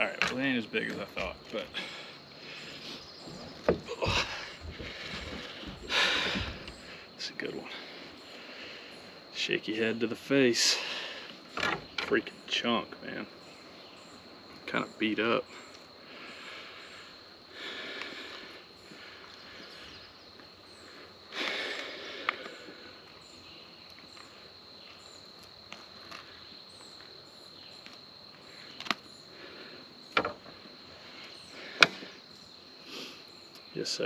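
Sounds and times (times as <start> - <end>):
insects trilling: 0.0 - 34.0.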